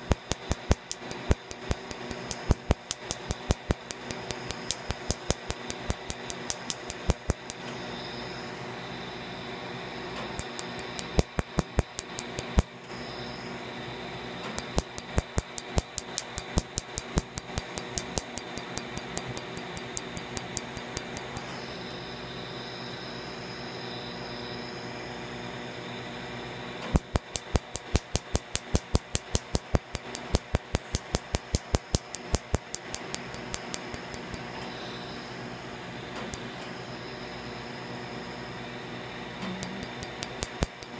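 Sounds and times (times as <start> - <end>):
laser firing sharp snapping clicks: 0.0 - 7.7, 10.2 - 12.8, 14.4 - 21.5, 26.8 - 34.6, 39.4 - 40.9
steady hum: 0.0 - 40.9.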